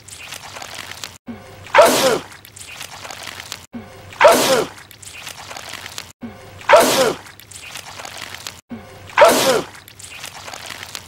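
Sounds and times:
man sneezing wetly: 0:01.8 - 0:02.3, 0:04.2 - 0:04.7, 0:06.7 - 0:07.2, 0:09.2 - 0:09.7.

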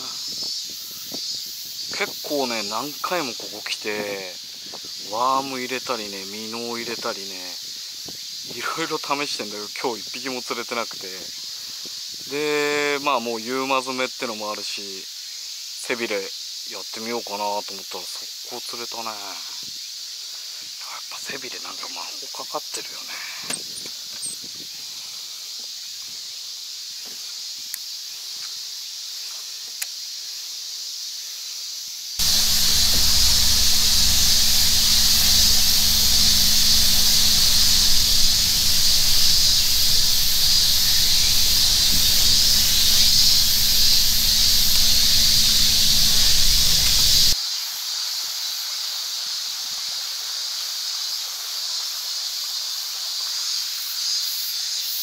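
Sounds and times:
cicadas chorus: 0:00.0 - 0:55.0
low steady hum: 0:32.2 - 0:47.4.

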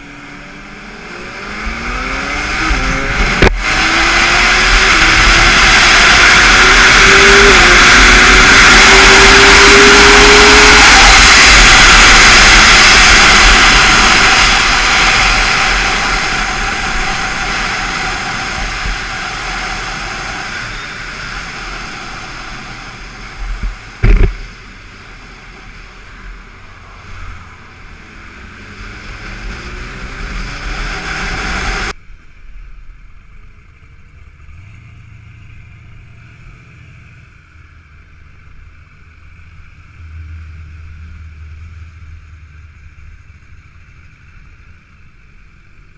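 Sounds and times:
motorcycle engine at speed: 0:00.0 - 0:32.0, 0:32.7 - 0:45.9
wind rush: 0:01.1 - 0:32.0
sharp knock: 0:23.6 - 0:24.4
engine idling: 0:33.1 - 0:45.9.

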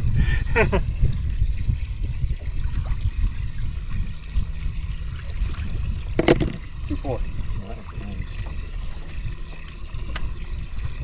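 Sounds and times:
low steady rumble: 0:00.0 - 0:11.0
water trickling and pouring: 0:00.0 - 0:11.0.

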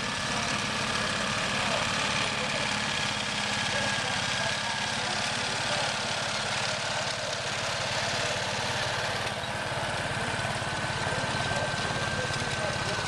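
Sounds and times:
crawler tractor engine running: 0:00.0 - 0:13.0.

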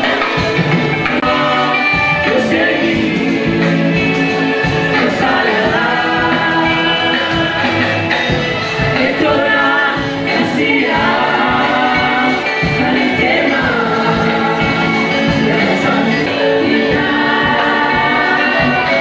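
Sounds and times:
gospel choir singing: 0:00.0 - 0:19.0
instrumental accompaniment: 0:00.0 - 0:19.0.

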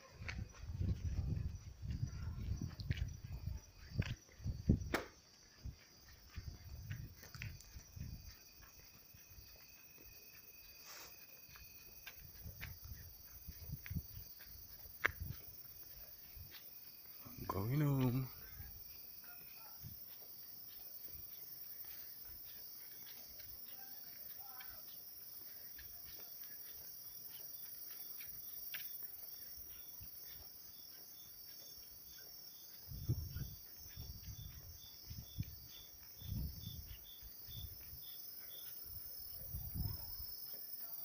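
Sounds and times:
insects chirping: 0:00.0 - 0:41.0
insects trilling: 0:00.0 - 0:41.0.

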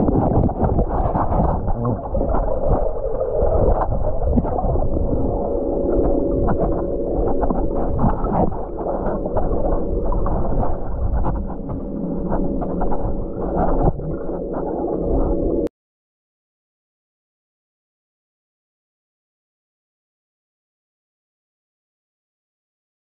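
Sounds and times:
steady hum: 0:00.0 - 0:15.7
underwater rumbling and bubbling: 0:00.0 - 0:15.7.

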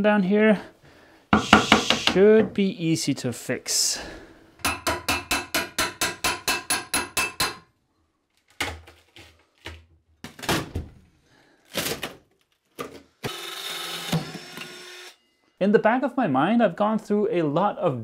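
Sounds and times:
hammer tapping steel pry tool: 0:01.4 - 0:02.2, 0:04.6 - 0:07.6.

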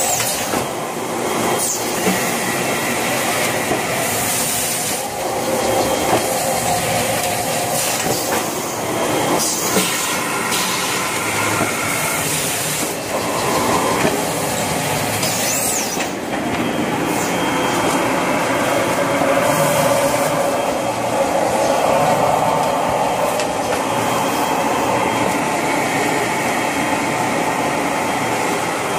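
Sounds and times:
packaging machine clatter and hiss: 0:00.0 - 0:00.8, 0:01.4 - 0:08.8, 0:09.4 - 0:16.2.

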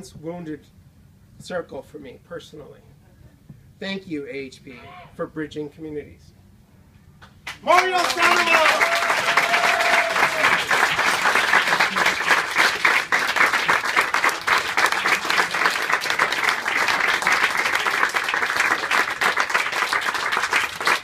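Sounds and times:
audience applauding: 0:07.5 - 0:21.0.

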